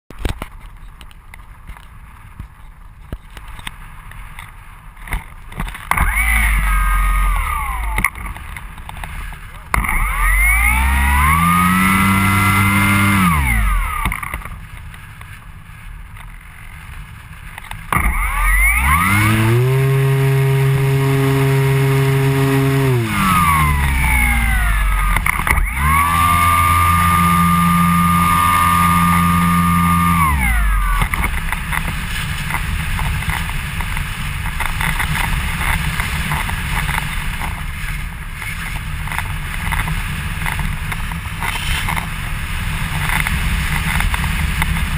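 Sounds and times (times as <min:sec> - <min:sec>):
electric motor whine: 0:05.9 - 0:08.4, 0:09.7 - 0:14.5, 0:17.9 - 0:32.6.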